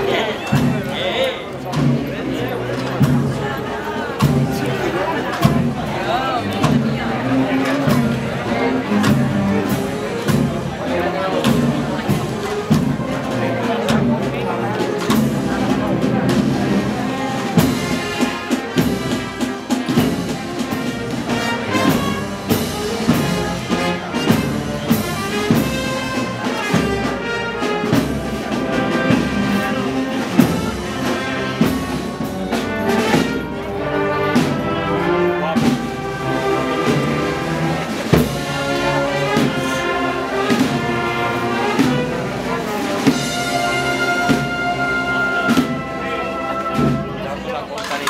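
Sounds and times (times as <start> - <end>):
trumpets and trombones: 0.0 - 48.0
drum strikes: 0.4 - 3.5, 4.2 - 34.6, 41.7 - 46.0, 46.6 - 47.2.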